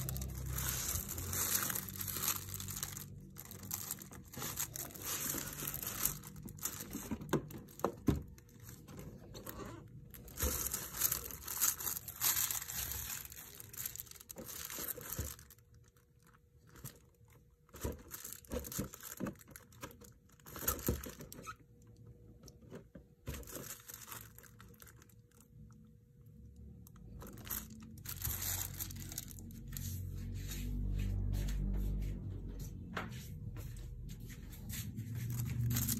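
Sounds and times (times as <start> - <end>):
plastic packaging crinkling: 0.0 - 30.9, 34.5 - 35.9.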